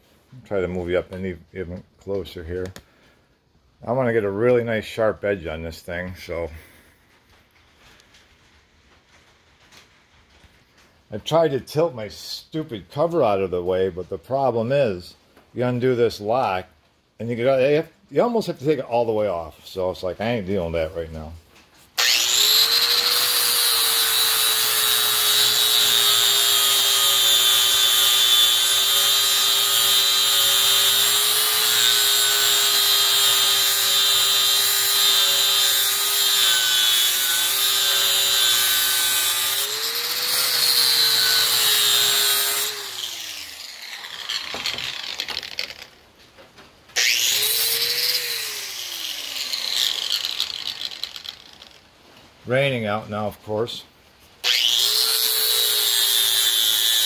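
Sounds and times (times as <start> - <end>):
angle grinder grinding steel: 22.0 - 46.0, 47.0 - 51.8, 54.4 - 57.0.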